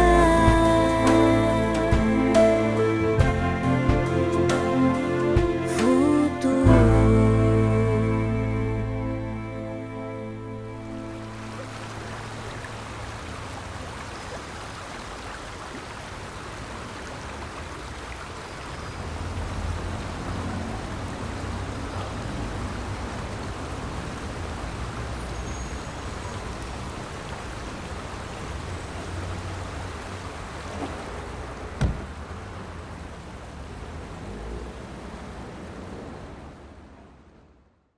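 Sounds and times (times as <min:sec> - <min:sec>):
water falling and splashing: 0:11.1 - 0:34.4.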